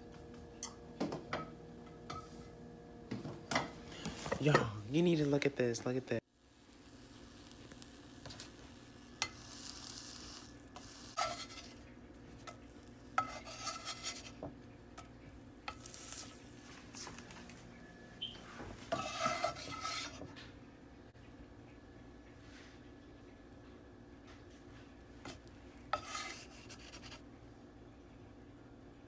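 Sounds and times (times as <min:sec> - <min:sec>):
spatula scraping frying pan: 0:07.4 - 0:16.6, 0:18.8 - 0:20.4, 0:25.2 - 0:27.2.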